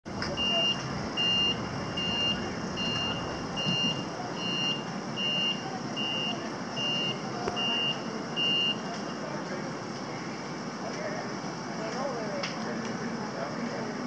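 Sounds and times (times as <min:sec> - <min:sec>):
steady low rumble: 0:00.1 - 0:04.5
forklift reversing alarm beeping: 0:00.1 - 0:08.9.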